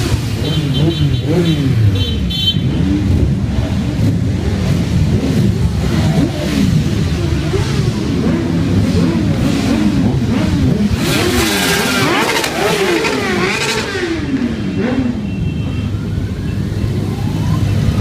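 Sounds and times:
motorcycles riding past: 0:00.0 - 0:18.0.

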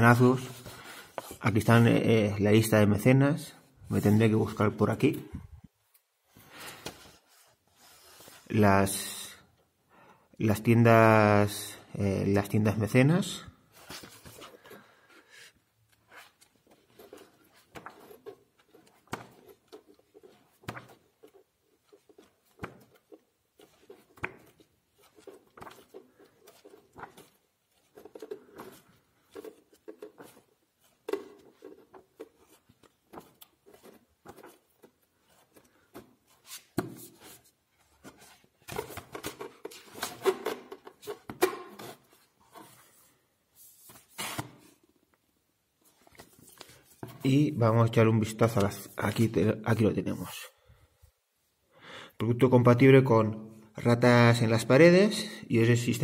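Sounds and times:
book pages rustling: 0:00.5 - 0:01.5, 0:06.4 - 0:08.5, 0:13.7 - 0:45.1, 0:45.8 - 0:47.5
book closing and handling: 0:13.8 - 0:15.1, 0:15.9 - 0:44.9.

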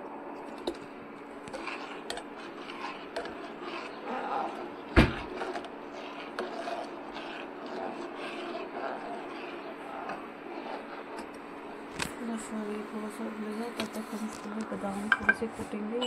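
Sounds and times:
spoon stirring in steel pot: 0:00.4 - 0:16.0.

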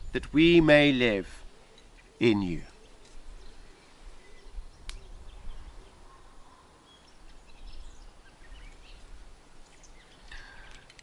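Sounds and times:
small birds chirping: 0:00.0 - 0:11.0
wind rumble on microphone: 0:04.3 - 0:06.1.

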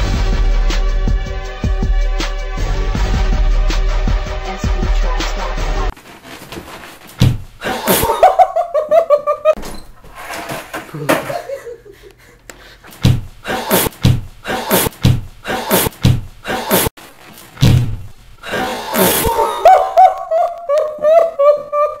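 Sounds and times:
sharp heavy thumps: 0:07.2 - 0:07.6, 0:13.0 - 0:16.3, 0:17.6 - 0:18.2.

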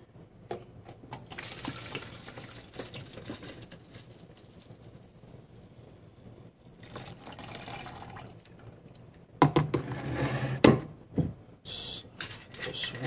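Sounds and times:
liquid trickling into jug: 0:01.2 - 0:03.7, 0:06.8 - 0:08.8.

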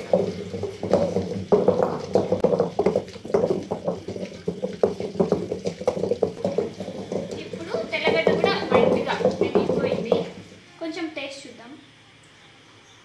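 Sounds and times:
pestle mashing wet chutney: 0:00.0 - 0:10.6.

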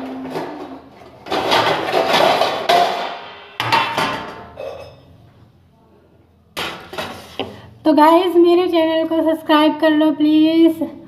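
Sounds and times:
metal items knocking and ringing: 0:01.3 - 0:05.1.

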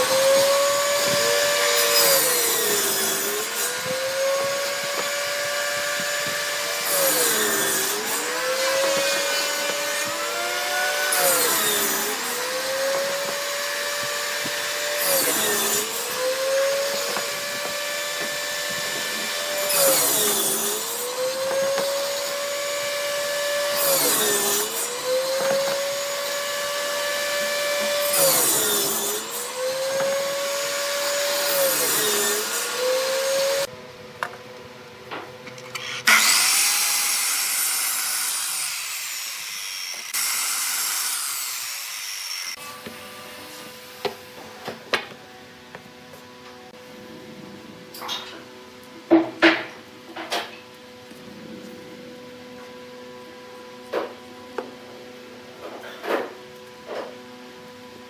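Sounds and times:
miter saw whining and cutting: 0:00.0 - 0:33.7, 0:35.4 - 0:46.8
table saw cutting wood: 0:00.0 - 0:33.7, 0:35.5 - 0:45.8.

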